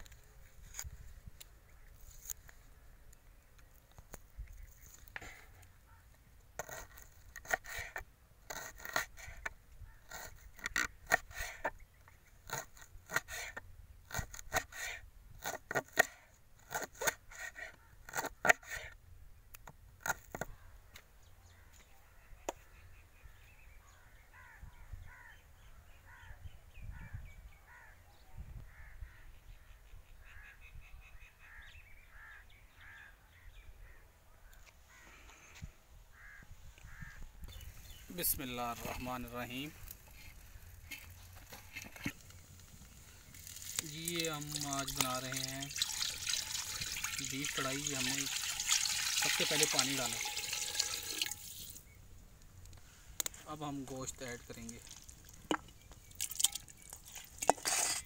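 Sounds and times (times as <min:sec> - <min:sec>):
bird calls: 0:20.4 - 0:42.2.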